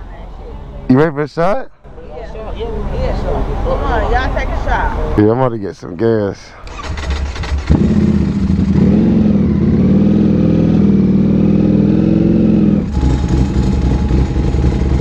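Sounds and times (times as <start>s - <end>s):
motorcycle engine running: 6.7s - 15.0s.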